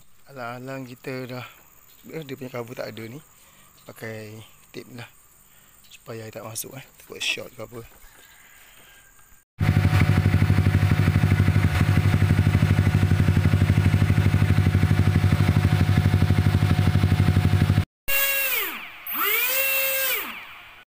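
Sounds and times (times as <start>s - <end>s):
scooter engine idling: 9.6s - 17.9s
small electric motor whining: 18.1s - 20.8s.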